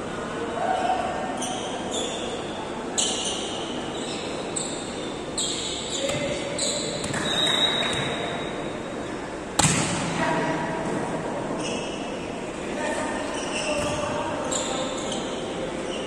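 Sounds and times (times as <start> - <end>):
voices in a hall: 0.0 - 16.0
volleyball being hit: 7.0 - 8.3, 9.6 - 10.2.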